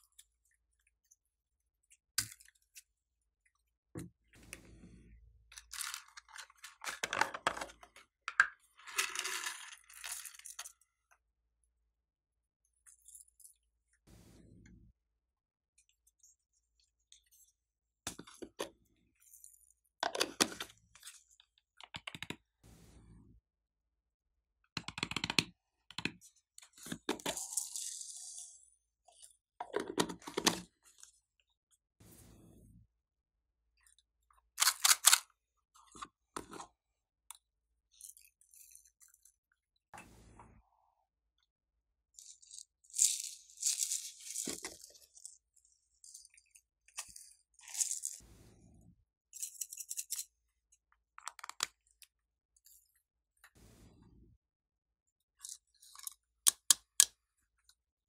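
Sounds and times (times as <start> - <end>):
beads and glitter pouring: 8.8 - 10.7, 27.2 - 28.7, 42.2 - 48.7.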